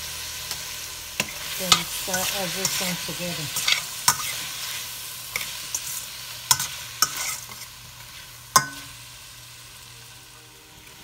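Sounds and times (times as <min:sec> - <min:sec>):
vegetables sizzling in a pan: 0:00.0 - 0:11.0.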